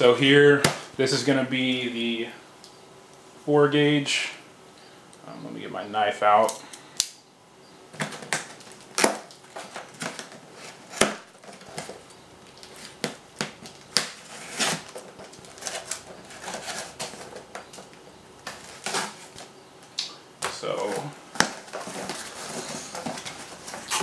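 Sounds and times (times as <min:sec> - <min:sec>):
knife cutting plastic straps: 0:12.6 - 0:19.4
cardboard scraping: 0:14.0 - 0:17.8, 0:18.4 - 0:19.4, 0:20.8 - 0:24.0.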